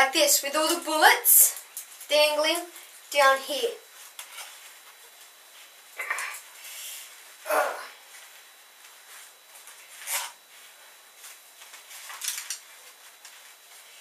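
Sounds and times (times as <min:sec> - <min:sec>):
rustling handling noises: 0:08.1 - 0:14.0.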